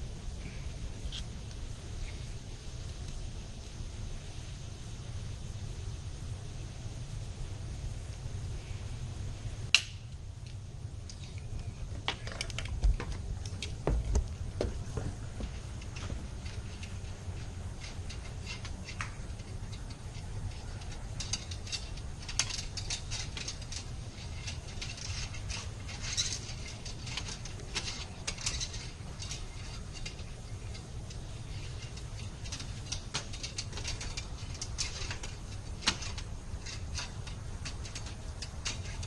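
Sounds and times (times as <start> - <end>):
steady low hum: 0.0 - 39.0
hand tools clicking and scraping metal: 9.7 - 39.0.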